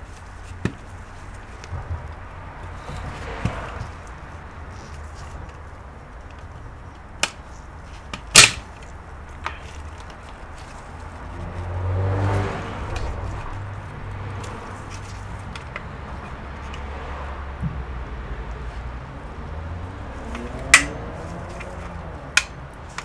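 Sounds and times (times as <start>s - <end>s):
plastic clips clicking and cracking: 8.1s - 10.2s, 20.3s - 23.0s.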